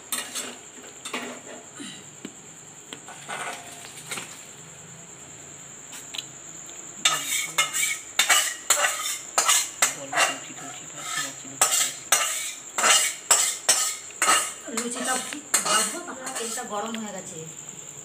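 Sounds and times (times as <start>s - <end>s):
metal spatula scraping metal pan: 0.1s - 1.5s, 7.0s - 16.7s.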